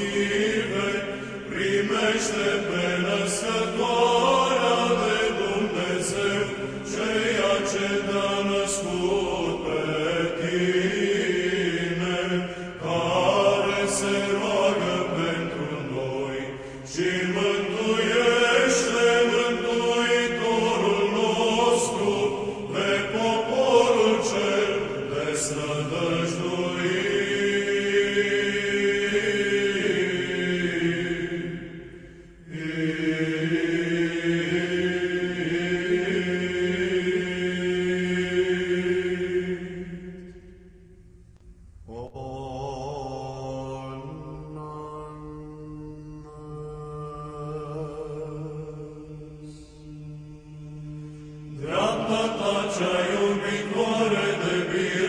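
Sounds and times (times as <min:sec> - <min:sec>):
church chant singing: 0:00.0 - 0:55.0.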